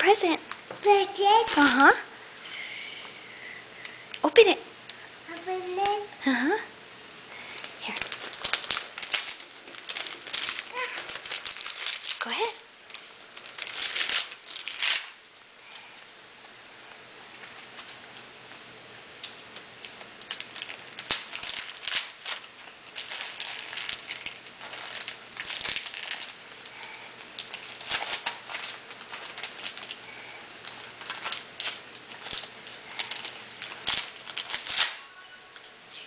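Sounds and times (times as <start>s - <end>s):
wrapping paper crinkling and tearing: 0.9s - 2.0s, 7.4s - 16.0s, 17.2s - 18.3s, 19.1s - 35.7s.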